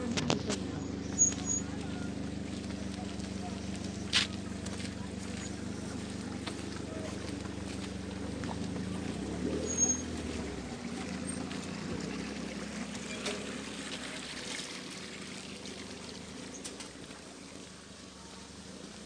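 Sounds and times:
water trickling: 0:08.2 - 0:19.0.

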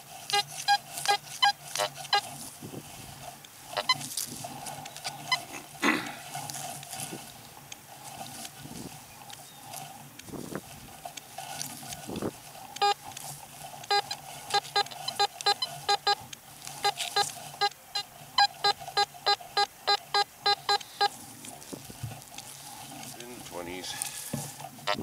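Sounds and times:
metal detector hum: 0:00.0 - 0:25.0
metal detector short beeps: 0:00.3 - 0:02.3, 0:03.7 - 0:04.1, 0:05.0 - 0:05.5, 0:12.8 - 0:13.0, 0:13.9 - 0:16.2, 0:16.8 - 0:21.2.

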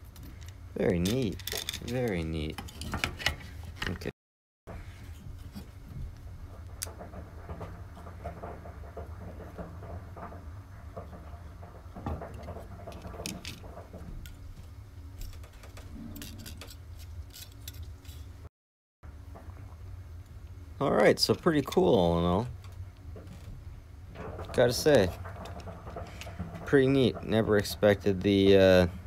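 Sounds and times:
steady low hum: 0:04.7 - 0:18.5, 0:19.1 - 0:29.0
light clicks taps and rustles: 0:22.4 - 0:28.6.

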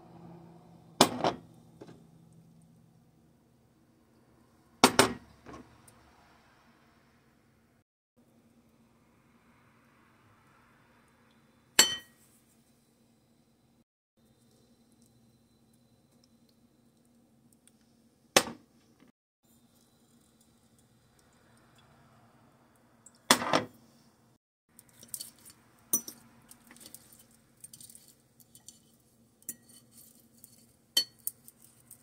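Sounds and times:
fork clinking on ceramic plate: 0:29.4 - 0:31.4.

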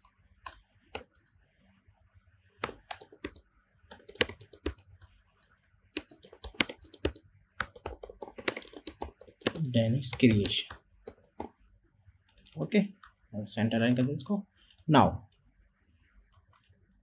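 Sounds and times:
keyboard typing clicks: 0:02.6 - 0:05.1, 0:06.0 - 0:11.5.

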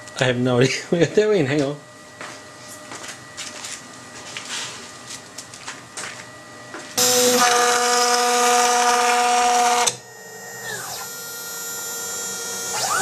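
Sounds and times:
router spindle whine: 0:07.0 - 0:13.0.

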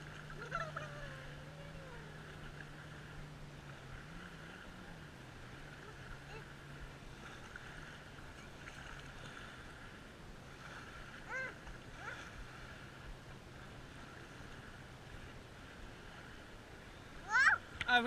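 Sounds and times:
children splashing in water: 0:00.0 - 0:03.0
small waves lapping: 0:00.0 - 0:18.0
steady low hum: 0:00.0 - 0:18.0.

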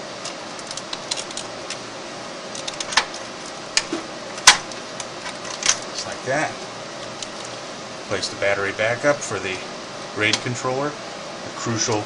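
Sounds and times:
room hum: 0:00.0 - 0:12.0.

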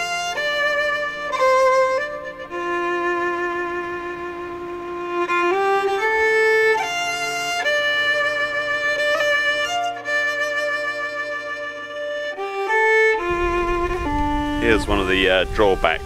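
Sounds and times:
violin playing slow held notes: 0:00.0 - 0:16.0
low rumble: 0:13.1 - 0:16.0.

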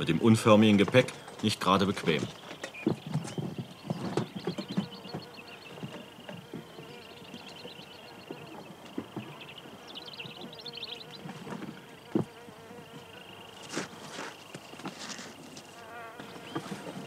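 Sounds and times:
insects droning and chirping: 0:00.0 - 0:17.0
insect trills: 0:00.2 - 0:17.0
boots scraping on rock: 0:13.6 - 0:17.0.

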